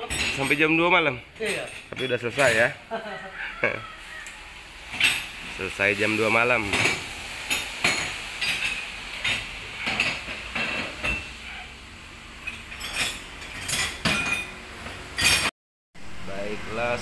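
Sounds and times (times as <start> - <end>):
metal tools clinking and knocking: 0.0 - 0.8, 1.4 - 2.8, 12.4 - 14.6, 15.2 - 15.5.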